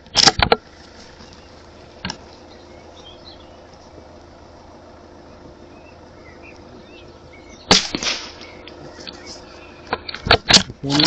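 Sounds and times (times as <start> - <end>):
bullet striking target: 7.7 - 8.6
rifle shot crack: 7.7 - 8.6.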